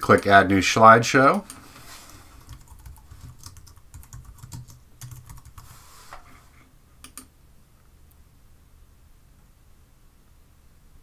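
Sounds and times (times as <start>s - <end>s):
faint keyboard typing: 1.3s - 5.8s, 7.0s - 7.3s.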